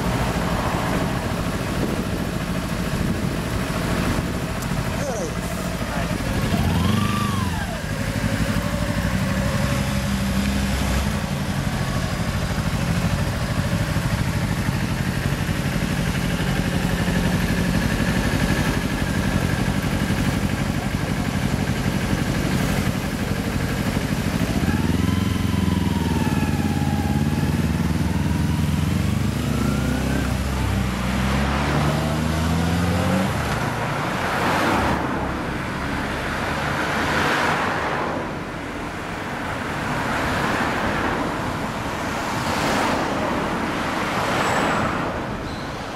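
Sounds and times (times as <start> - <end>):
motorcycle engines idling: 0.0 - 34.6
motorcycles revving and pulling away: 0.0 - 45.9
passing road traffic: 0.0 - 45.9.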